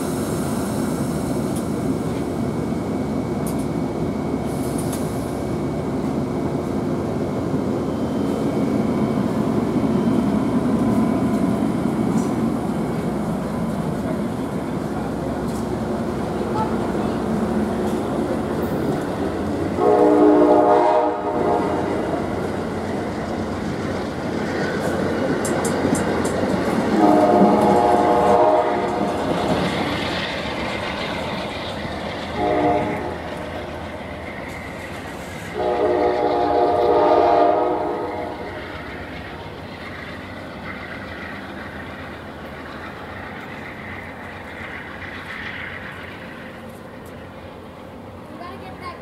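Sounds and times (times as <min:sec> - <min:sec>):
train cars rumbling and clattering: 0:00.0 - 0:49.0
train horn blasts: 0:19.8 - 0:22.0, 0:26.9 - 0:29.0, 0:32.4 - 0:33.2, 0:35.5 - 0:38.4.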